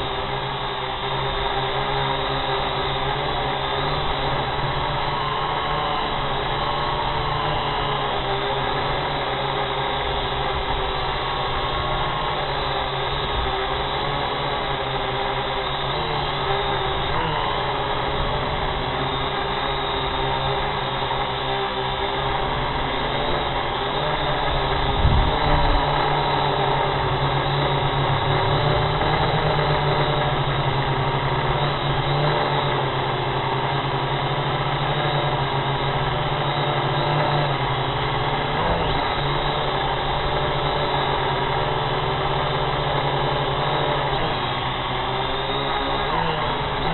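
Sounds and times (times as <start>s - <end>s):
drone motors whining: 0.0s - 46.9s.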